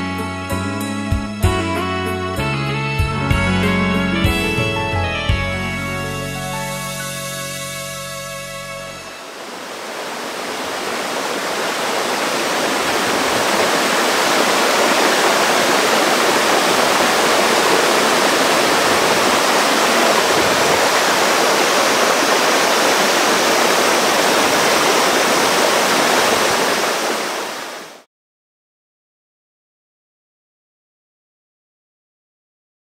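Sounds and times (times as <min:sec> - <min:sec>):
waterfall rushing: 0:08.8 - 0:28.0.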